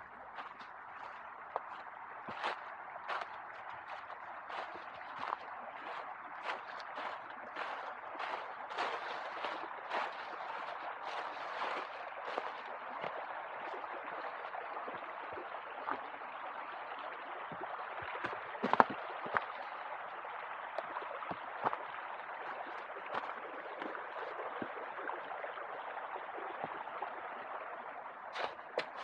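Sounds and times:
stream running over rocks: 0:00.0 - 0:29.0.

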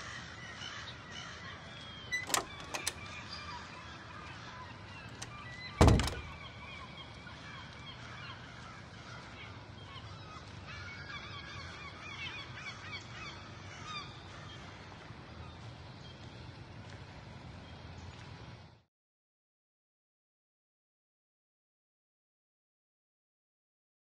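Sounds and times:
birds calling: 0:00.2 - 0:14.7
loud thump: 0:05.8 - 0:06.4.

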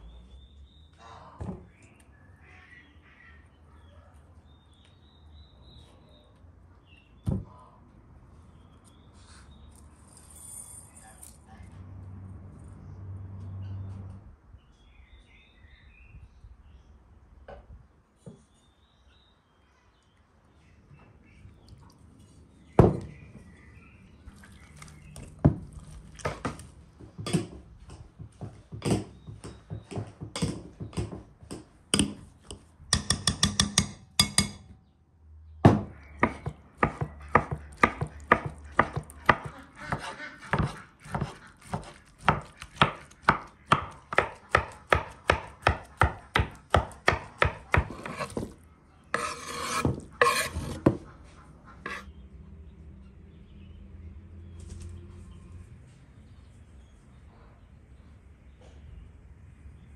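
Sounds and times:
knife chopping on wooden board: 0:28.8 - 0:34.6, 0:35.7 - 0:48.6, 0:49.2 - 0:51.0
spoon scraping in glass bowl: 0:47.9 - 0:50.8, 0:51.9 - 0:52.1.

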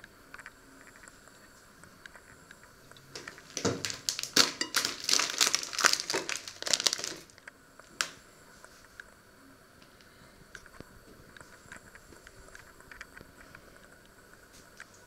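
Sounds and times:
plastic bag crinkling: 0:03.1 - 0:07.4.

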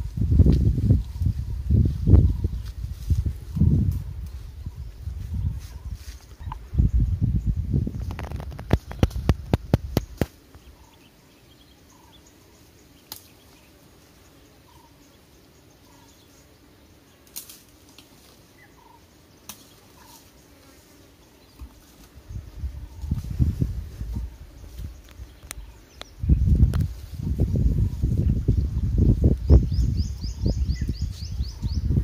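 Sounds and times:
twig snaps: 0:08.1 - 0:10.4, 0:13.1 - 0:13.4, 0:17.2 - 0:18.1, 0:19.4 - 0:19.8
elephant tearing leafy branches: 0:17.2 - 0:18.4.

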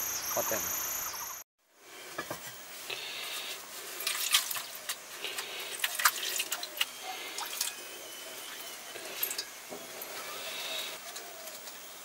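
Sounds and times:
water dripping and splashing: 0:04.0 - 0:07.8, 0:08.5 - 0:10.3.

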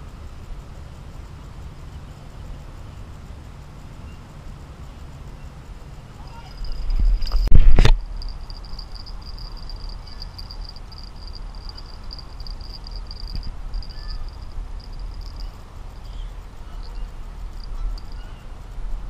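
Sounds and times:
pulsed insect chirping: 0:03.8 - 0:19.0.

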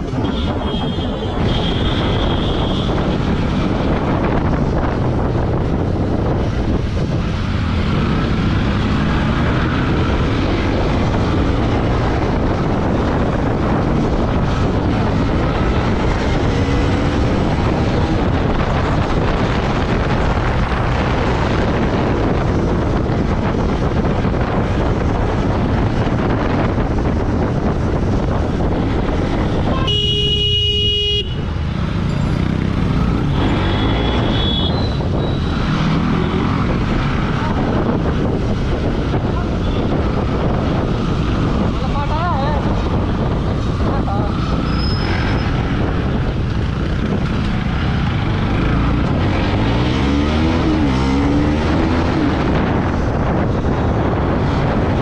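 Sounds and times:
motorcycle engine: 0:00.0 - 0:55.0
road and wind noise: 0:00.0 - 0:55.0
vehicle horn honking: 0:29.7 - 0:31.5, 0:33.6 - 0:35.0.

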